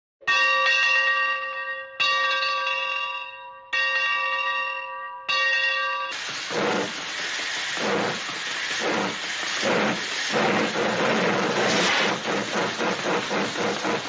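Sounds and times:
sudden hissing noise: 6.2s - 14.0s.

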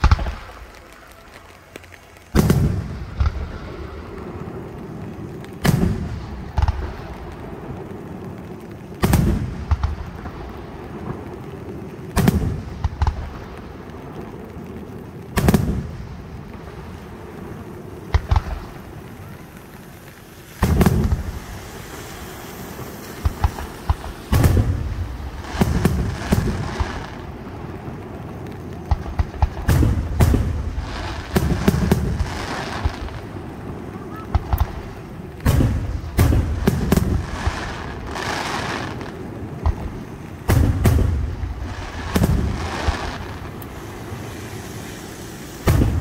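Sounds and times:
rolling rumble: 0.0s - 46.0s.

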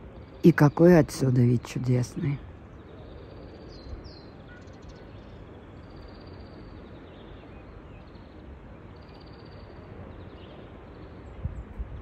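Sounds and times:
wind rumble on microphone: 9.6s - 12.0s.

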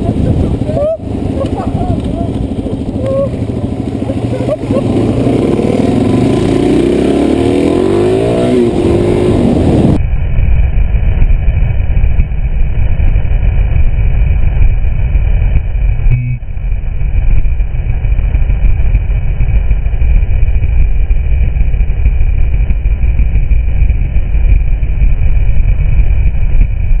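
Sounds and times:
motorcycle engine revving: 0.0s - 27.0s
wind while riding: 0.0s - 27.0s.

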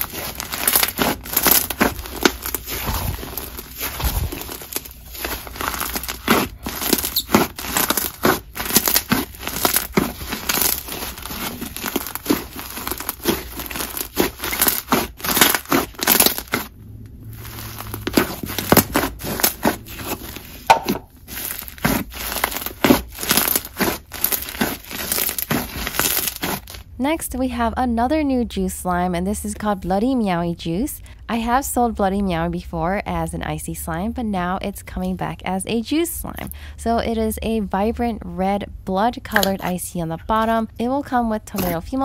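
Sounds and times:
slime crackling and popping: 0.0s - 26.9s, 41.5s - 42.0s.

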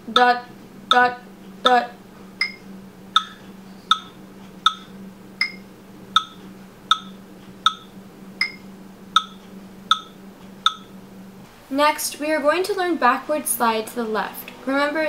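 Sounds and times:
steady low hum: 0.0s - 15.0s
electronic metronome clicking: 0.1s - 1.8s, 2.4s - 10.9s.

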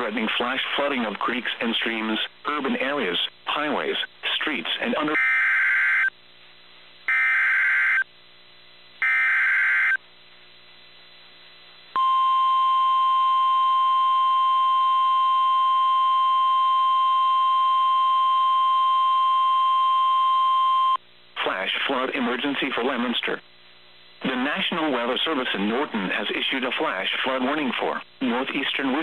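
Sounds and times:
steady warning alarm tone: 5.1s - 6.1s, 7.1s - 8.1s, 9.0s - 10.0s, 12.0s - 21.0s.

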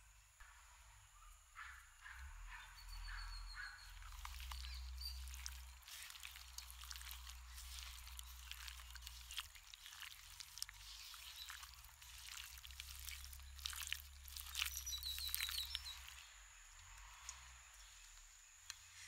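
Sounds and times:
soft drips and squelches: 3.2s - 19.0s
high chirps: 14.4s - 16.3s.

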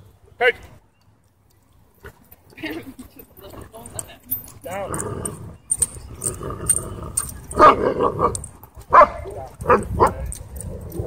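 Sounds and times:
dogs barking and growling: 3.4s - 11.0s.

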